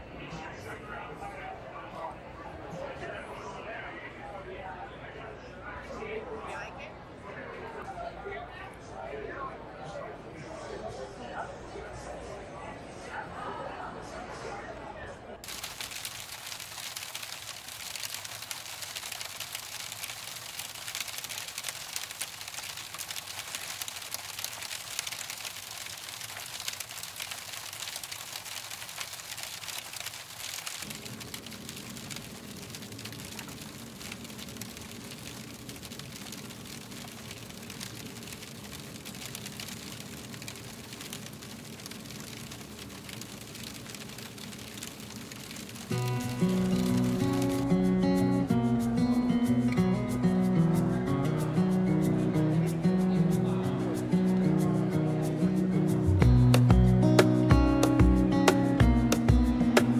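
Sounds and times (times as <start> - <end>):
rain pattering on a roof: 15.4 - 48.1, 56.0 - 59.9.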